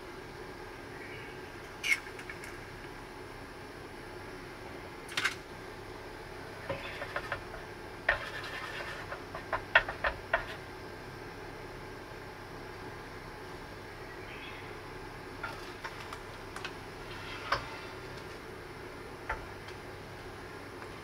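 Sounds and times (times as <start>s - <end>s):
faint sizzle: 2.6s - 21.0s
chopsticks tapping on pan: 9.1s - 10.6s.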